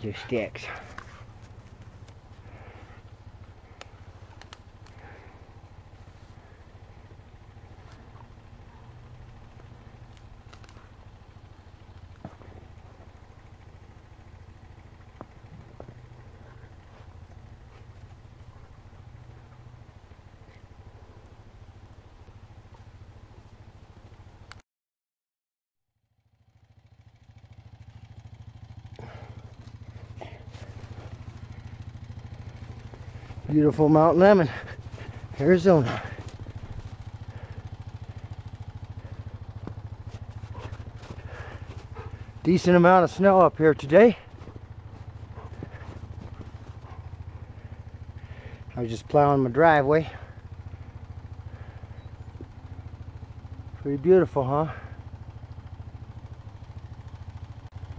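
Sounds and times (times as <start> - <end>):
vehicle engine running: 0.0 - 24.6, 26.0 - 57.9
faint clicks: 3.8 - 5.0.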